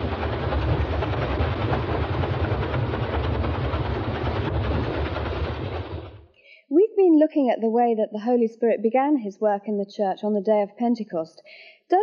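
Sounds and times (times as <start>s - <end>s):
water pouring onto water wheel: 0.0s - 6.3s
heavy low rumble: 0.0s - 6.4s.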